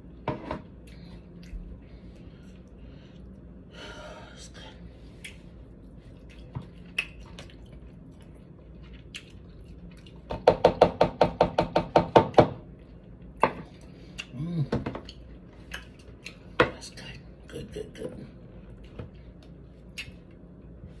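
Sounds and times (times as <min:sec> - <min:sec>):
person humming: 0:14.3 - 0:14.8.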